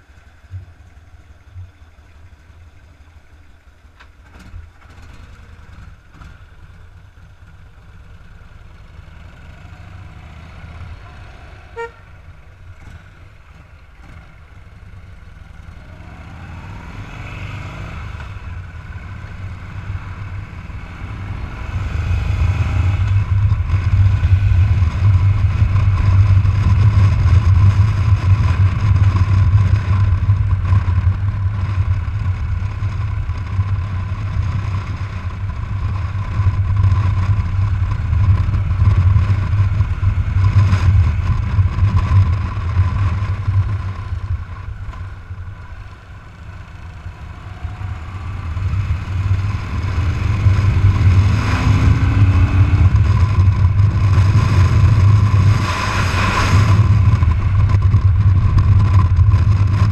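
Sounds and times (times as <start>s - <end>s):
motorcycle engine running: 0.0s - 59.9s
road rumble: 0.0s - 59.9s.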